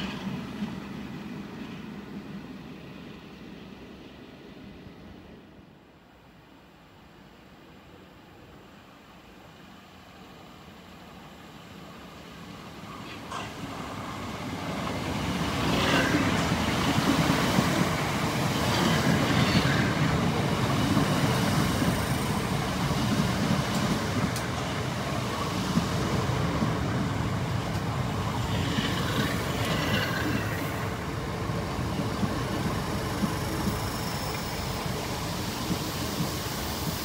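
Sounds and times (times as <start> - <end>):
electric train wheels and motors: 12.8 - 37.0
high train squeals: 12.8 - 37.0.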